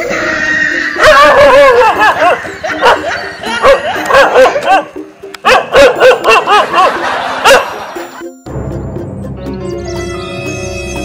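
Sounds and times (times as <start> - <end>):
dog barking sharply: 3.6 - 7.7.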